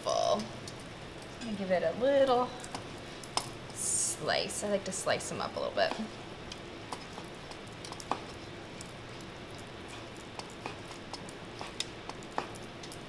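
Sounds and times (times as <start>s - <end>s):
knife and tongs tapping: 5.9s - 13.0s.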